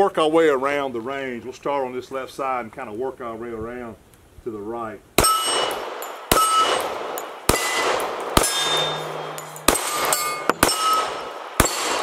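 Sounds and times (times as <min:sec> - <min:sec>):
bullet ringing on steel target: 0:05.2 - 0:12.0
pistol shots: 0:05.2 - 0:12.0.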